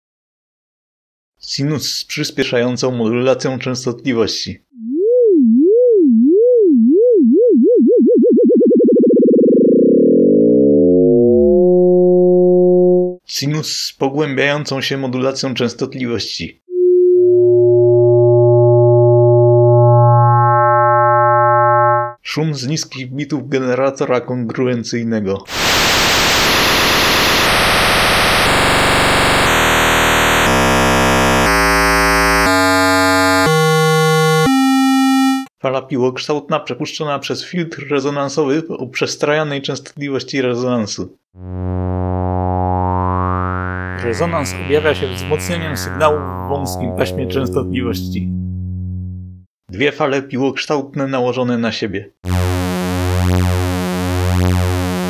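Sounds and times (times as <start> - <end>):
frequency modulated sine tone: 4.8 - 13.2, 16.7 - 22.2, 26.0 - 35.5, 41.4 - 49.5
computer-generated noise: 25.5 - 33.5, 42.7 - 49.0.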